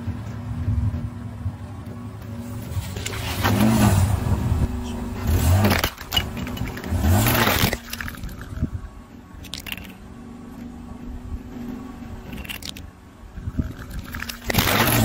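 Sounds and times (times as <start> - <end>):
car engine revving: 0.0 - 15.0
tyre crushing plastic toys: 5.3 - 8.6, 9.4 - 10.0, 13.6 - 15.0.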